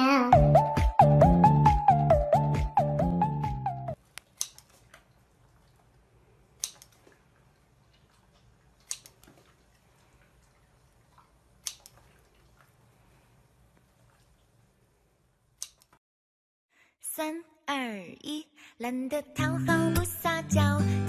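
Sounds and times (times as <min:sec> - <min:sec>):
scissors snipping carrot: 0:04.2 - 0:04.8.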